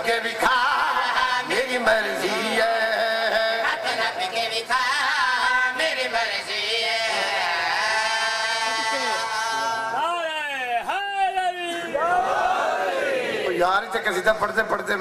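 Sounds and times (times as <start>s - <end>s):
man chanting into microphone: 0.0s - 11.9s.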